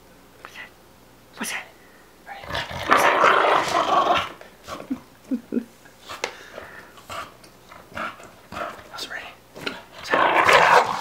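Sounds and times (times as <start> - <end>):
dog growling and grunting: 2.3 - 5.0, 7.0 - 8.9, 9.6 - 11.0.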